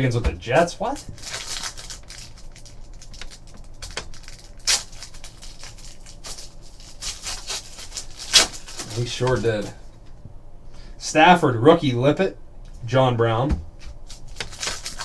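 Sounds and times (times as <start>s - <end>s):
foil wrapper crinkling and tearing: 0.8s - 9.8s, 14.0s - 15.0s.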